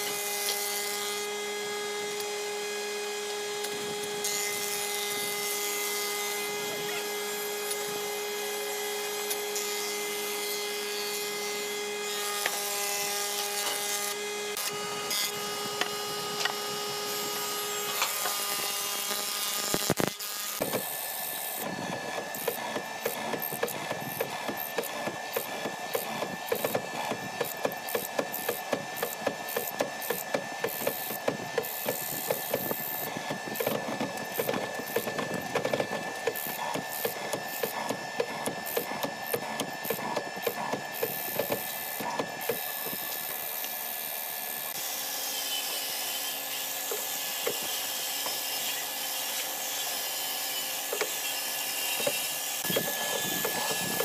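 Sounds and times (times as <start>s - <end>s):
machine motor humming: 0.9s - 44.7s, 52.6s - 54.0s
chisel chopping wood: 21.7s - 43.0s, 52.0s - 54.0s.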